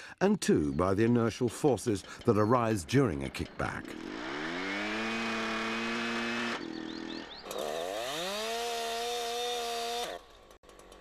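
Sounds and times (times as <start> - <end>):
chainsaw revving at full throttle: 3.9 - 11.0.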